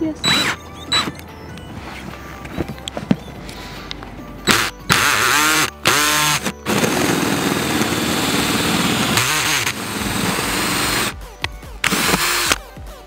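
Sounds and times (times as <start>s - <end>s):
cordless drill cutting through metal: 0.2s - 1.2s, 4.4s - 11.2s, 11.8s - 12.7s.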